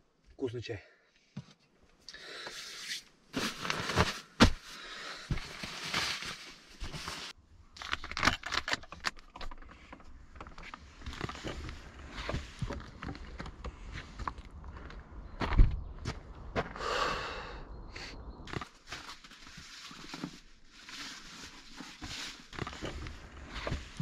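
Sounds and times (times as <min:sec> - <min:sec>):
person handling gear rustling: 0:03.3 - 0:14.4, 0:18.5 - 0:24.0.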